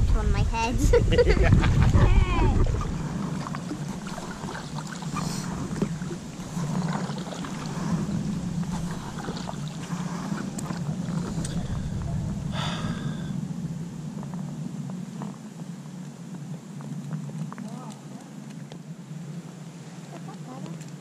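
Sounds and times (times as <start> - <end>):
steady low hum: 0.0 - 21.0
paddle dipping into water: 1.4 - 13.6
small water splashes and drips: 2.6 - 11.8.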